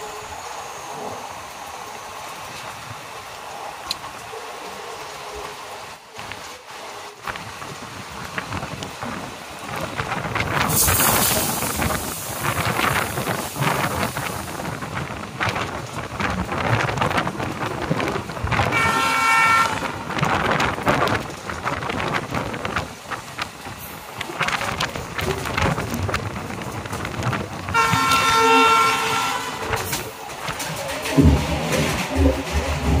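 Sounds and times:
train wheels clattering: 7.2s - 33.0s
wind rushing: 7.4s - 28.4s
locomotive horn blast: 18.6s - 20.1s, 27.7s - 30.0s.

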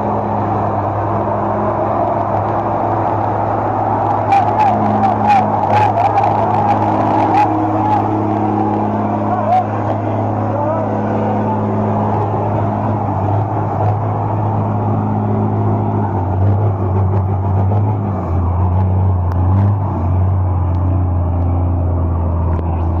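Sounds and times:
truck engine under load: 0.0s - 23.0s.

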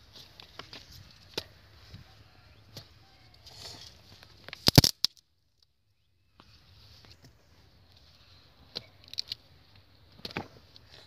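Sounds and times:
metal tool digging into clay: 4.6s - 5.1s.

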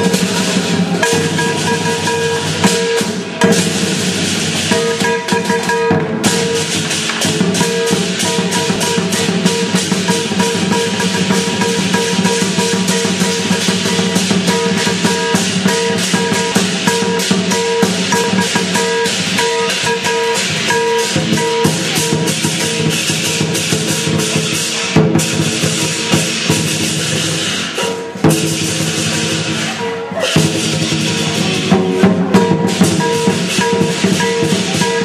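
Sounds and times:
big drum beating: 0.0s - 35.0s
cymbals clashing: 0.0s - 35.0s
gong: 0.0s - 35.0s
ringing pitched tone: 31.1s - 35.0s.

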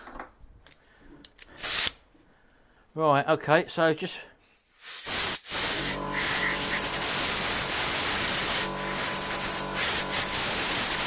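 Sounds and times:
compressed air hissing: 1.5s - 2.0s, 4.4s - 11.0s.

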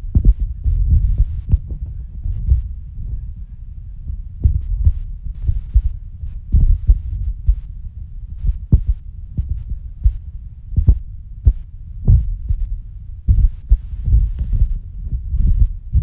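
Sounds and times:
steady low rumble: 0.0s - 16.0s
muffled handling thumps: 8.4s - 10.2s.

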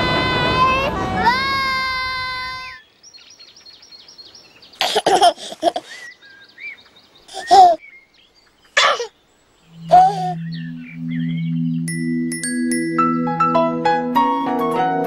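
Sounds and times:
small birds chirping: 2.5s - 12.2s
baby giggling: 4.8s - 6.1s, 7.3s - 7.8s, 8.8s - 9.1s, 9.9s - 10.4s.

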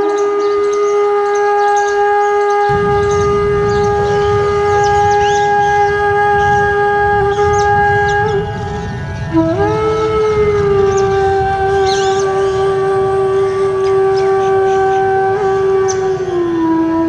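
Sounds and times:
wind instrument long note: 0.0s - 17.0s
low rumble: 2.7s - 15.6s.

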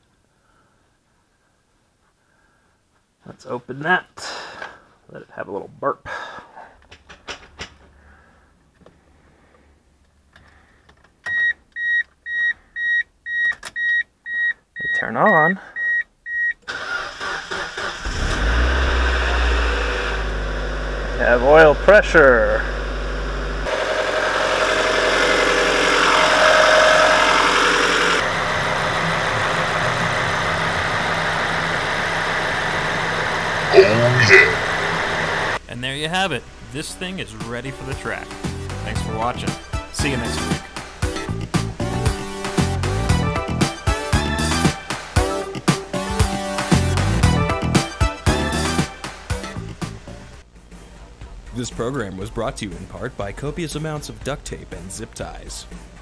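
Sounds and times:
car engine idling: 18.0s - 43.0s
electronic warning chime beeping: 26.1s - 28.2s.

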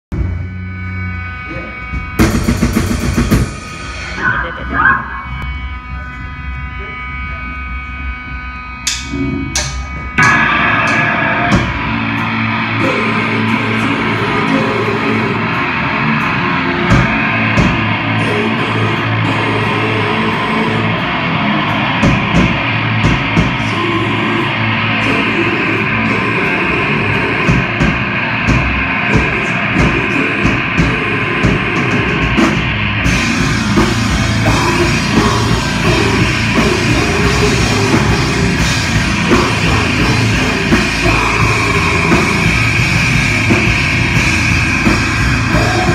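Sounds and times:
heavy rock band playing: 0.1s - 45.9s
drum hits: 8.9s - 13.1s.

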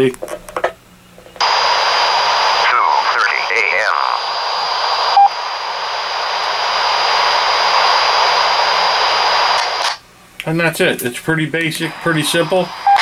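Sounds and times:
radio hiss with high whine: 1.4s - 13.0s
short radio beep: 5.2s - 5.4s.

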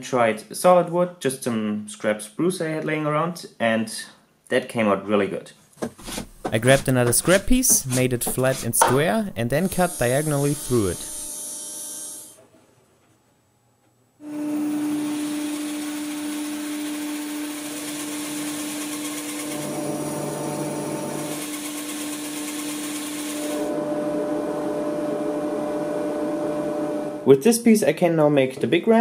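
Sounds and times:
bandsaw cutting wood: 6.0s - 12.4s, 14.2s - 23.8s.

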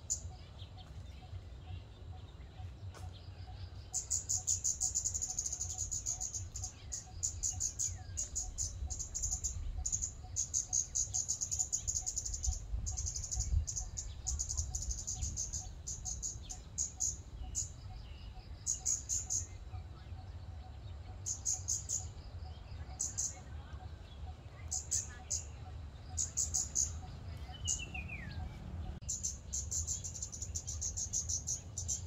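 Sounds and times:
bird high-pitched ticking calls: 0.0s - 32.0s
low steady rumble: 25.4s - 32.0s.

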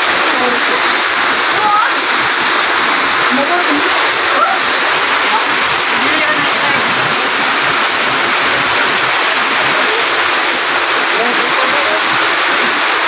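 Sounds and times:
waterfall rushing into pool: 0.0s - 13.0s
faint voices: 3.2s - 8.0s.

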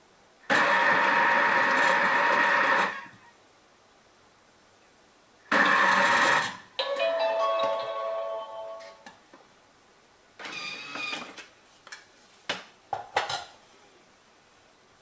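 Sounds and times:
food processor churning: 0.5s - 3.1s, 5.5s - 6.6s.

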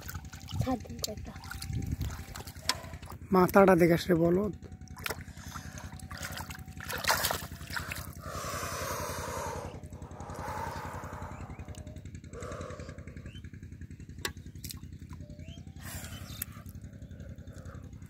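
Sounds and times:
small engine running: 0.0s - 18.0s
hands splashing in muddy water: 4.9s - 8.2s.

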